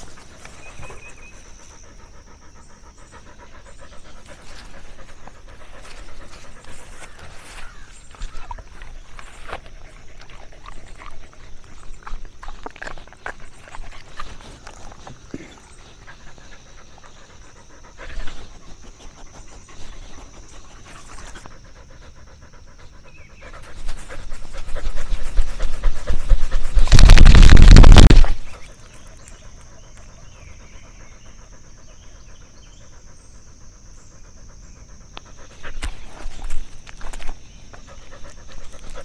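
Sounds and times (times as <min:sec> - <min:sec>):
dog panting: 0:00.0 - 0:27.2, 0:28.3 - 0:39.0
rough rubbing noise: 0:23.7 - 0:28.6.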